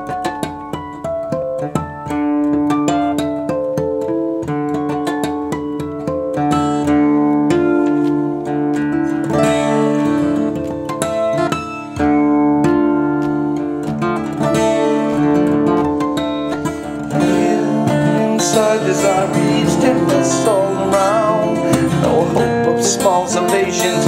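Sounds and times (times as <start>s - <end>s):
acoustic guitar strummed hard: 0.0s - 24.0s
man singing: 17.0s - 24.0s.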